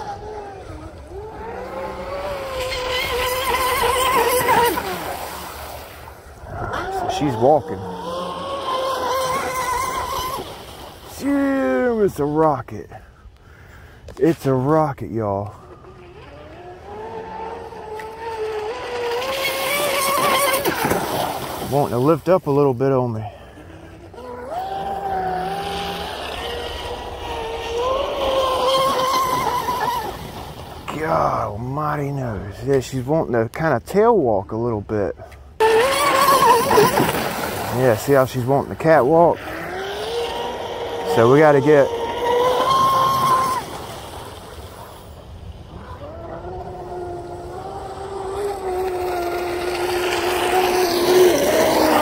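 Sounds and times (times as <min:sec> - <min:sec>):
high-pitched electric motor whine: 0:00.0 - 0:05.6, 0:35.6 - 0:37.7, 0:39.3 - 0:52.0
model boat electric motor whining: 0:00.0 - 0:12.4, 0:15.0 - 0:31.5, 0:35.4 - 0:52.0.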